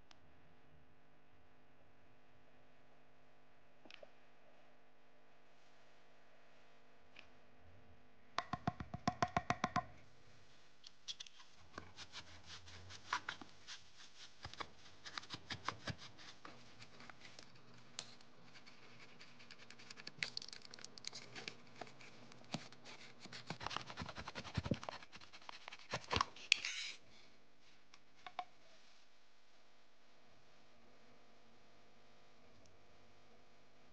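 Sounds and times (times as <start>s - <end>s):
utility knife scraping glue: 22.5s - 27.0s.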